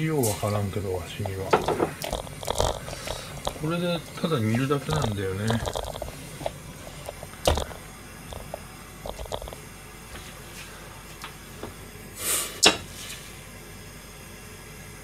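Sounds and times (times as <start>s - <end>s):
cookware knocking: 1.5s - 2.0s.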